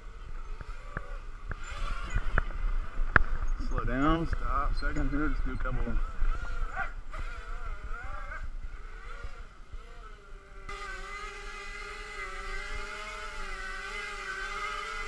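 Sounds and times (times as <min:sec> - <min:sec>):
drone propellers buzzing: 0:00.0 - 0:15.0.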